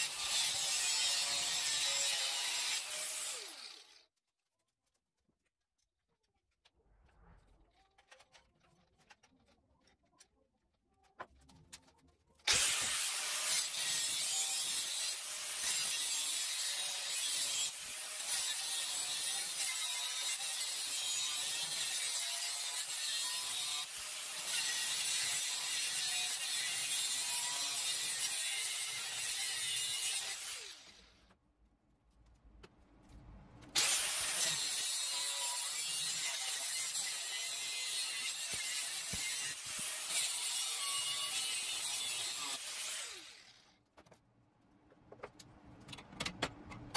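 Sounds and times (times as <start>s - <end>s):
angle grinder cutting steel: 0.0s - 4.0s, 12.5s - 31.1s, 33.8s - 43.6s.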